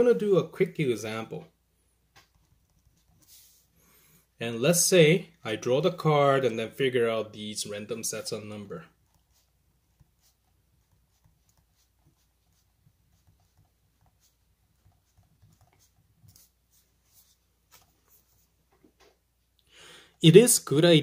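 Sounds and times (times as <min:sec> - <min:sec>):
pen scratching on paper: 0:02.2 - 0:03.7, 0:08.9 - 0:18.5.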